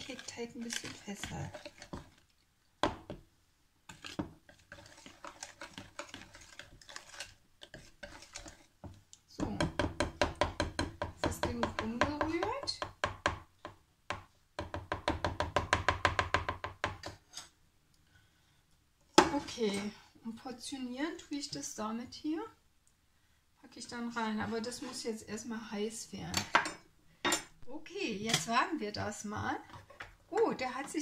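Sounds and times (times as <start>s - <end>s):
whisk beating batter in bowl: 3.9s - 8.7s.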